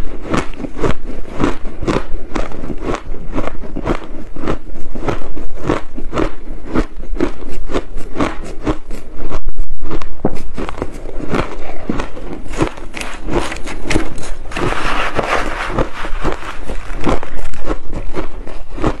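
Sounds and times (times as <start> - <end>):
crushed ice crunching: 12.2 - 19.0.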